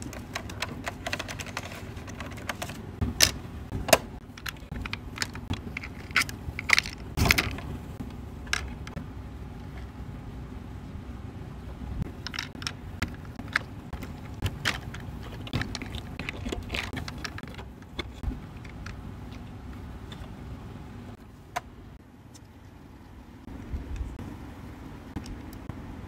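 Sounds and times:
plastic toy clicking and rattling: 0:00.0 - 0:07.7, 0:12.0 - 0:19.5
low steady rumble: 0:00.0 - 0:26.0.

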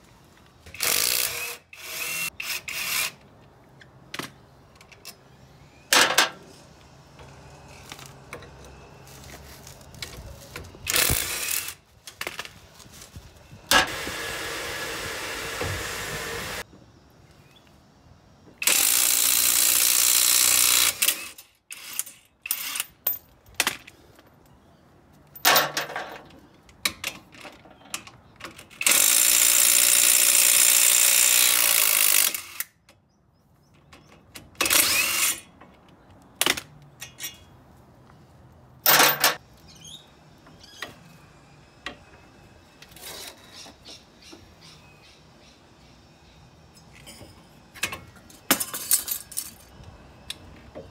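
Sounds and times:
tools and parts clanking: 0:05.9 - 0:06.5, 0:21.0 - 0:29.0, 0:33.7 - 0:37.7, 0:38.8 - 0:39.5, 0:46.7 - 0:50.9.

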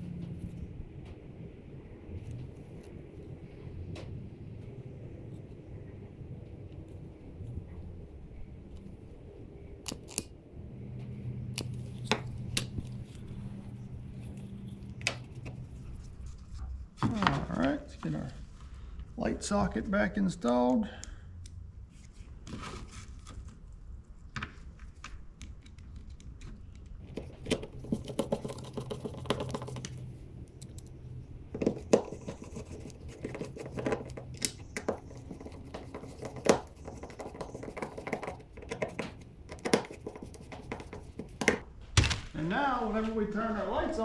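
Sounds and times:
low hum: 0:00.0 - 0:20.3.

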